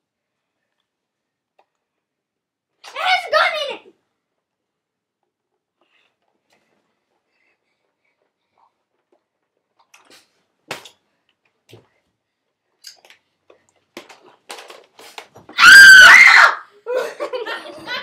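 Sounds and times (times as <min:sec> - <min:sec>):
child screaming: 0:15.6 - 0:16.7
giggling and laughter: 0:16.8 - 0:18.0.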